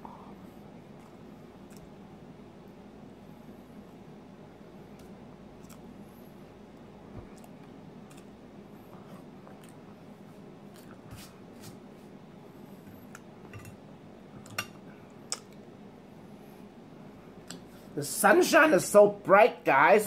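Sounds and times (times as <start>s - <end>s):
soft chewing: 0.0s - 2.9s, 4.8s - 11.3s, 12.1s - 13.7s, 14.3s - 16.7s.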